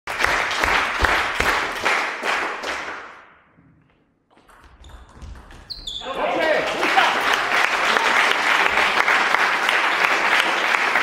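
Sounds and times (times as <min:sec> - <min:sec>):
spectators applauding: 0:00.1 - 0:03.0, 0:06.2 - 0:11.0.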